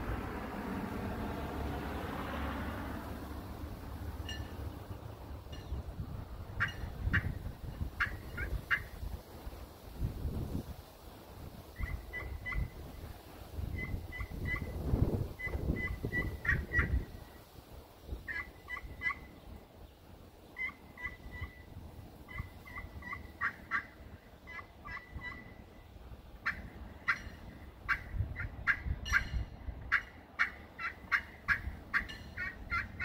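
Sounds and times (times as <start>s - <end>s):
turkey pot call notes: 6.5s - 9.0s, 11.7s - 13.0s, 13.7s - 17.5s, 18.1s - 19.4s, 20.4s - 33.0s.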